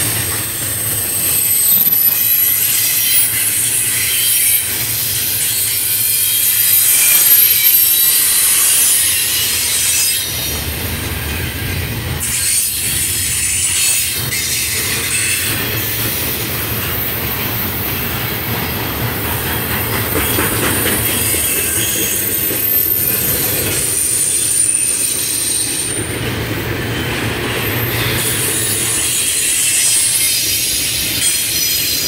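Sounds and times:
high-pitched wheel squeal: 0.0 - 10.6, 19.7 - 26.1, 26.9 - 32.0
train wheels rumbling on rail: 0.0 - 32.0.

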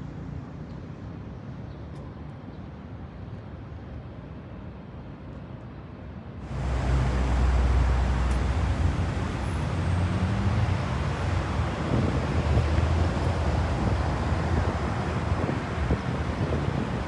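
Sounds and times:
open-air ambience: 0.0 - 17.0
road traffic rumble: 6.4 - 17.0
engine rising in pitch: 6.5 - 14.1.

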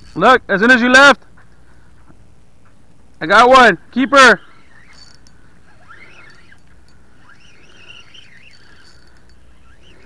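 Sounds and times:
bird singing: 4.0 - 10.0.

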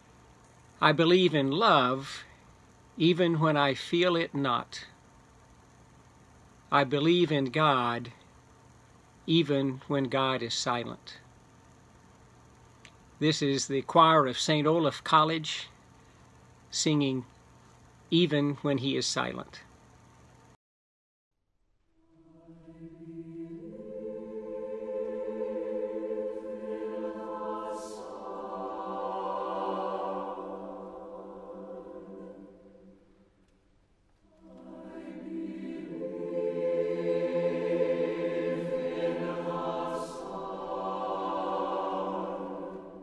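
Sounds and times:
mixed choir singing: 22.1 - 33.1, 34.3 - 43.0.

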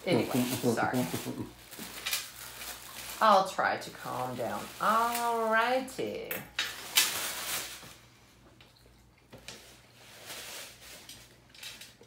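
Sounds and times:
tissue paper crinkling: 0.0 - 5.9, 6.7 - 8.1, 9.6 - 11.8.

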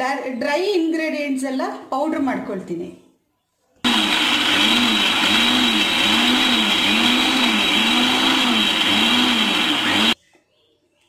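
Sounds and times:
mixer grinder whirring: 3.9 - 10.2.

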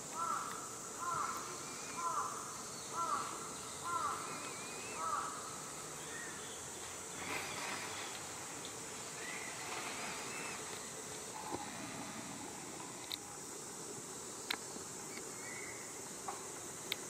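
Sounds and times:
crow cawing: 0.2 - 1.4, 2.0 - 4.3, 5.0 - 5.4.

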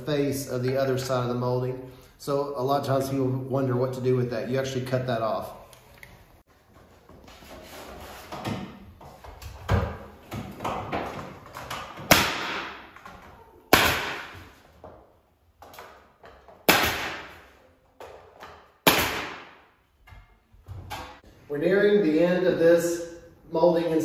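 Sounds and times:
nail gun firing: 12.1 - 12.8, 13.7 - 14.4, 16.6 - 17.4, 18.8 - 19.6.

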